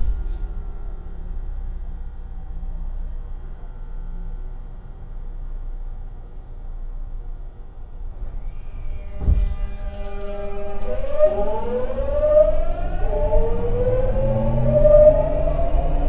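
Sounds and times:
train inverter and motor whine: 0.0s - 16.0s
low thump: 9.1s - 10.4s.

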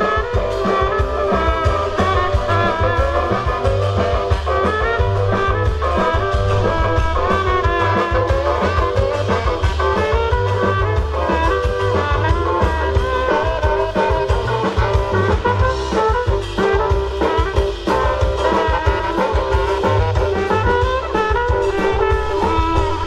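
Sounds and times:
swing band playing: 0.0s - 23.0s.

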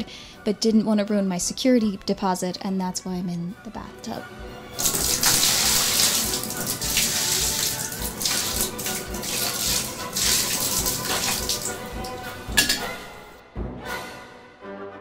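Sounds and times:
coffee pouring and splashing: 4.8s - 12.2s.

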